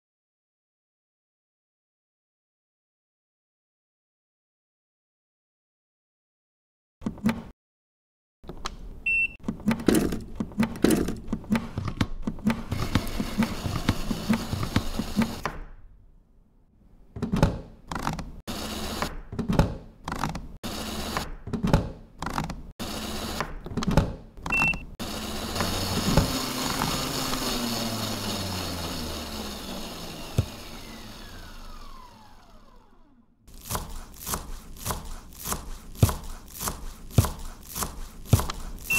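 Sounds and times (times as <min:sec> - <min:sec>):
kitchen machine motor running: 0:12.4 - 0:15.5, 0:18.5 - 0:19.2, 0:20.6 - 0:21.3, 0:22.8 - 0:23.6, 0:24.6 - 0:38.9
short beeps: 0:24.5 - 0:24.9.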